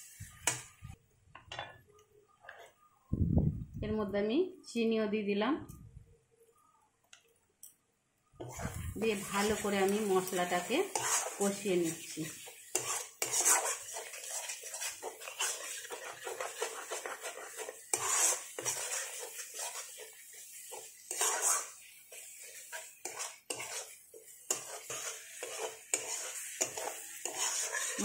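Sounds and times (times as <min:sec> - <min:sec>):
metal spatula scraping a pan: 0:00.0 - 0:00.8, 0:08.4 - 0:28.0.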